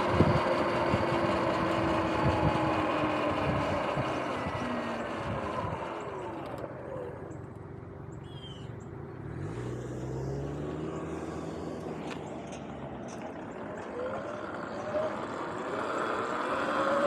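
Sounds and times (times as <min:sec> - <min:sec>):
electric motor whine: 0:00.0 - 0:07.5
road and wind noise: 0:00.0 - 0:17.0.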